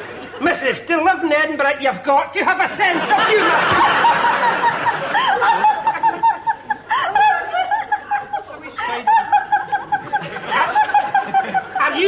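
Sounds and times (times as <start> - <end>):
person giggling: 3.1 - 11.8.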